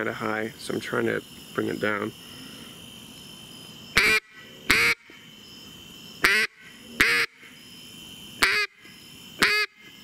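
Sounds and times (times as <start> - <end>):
duck call quacks: 4.0 - 5.1, 6.2 - 7.4, 8.4 - 8.8, 9.4 - 9.8.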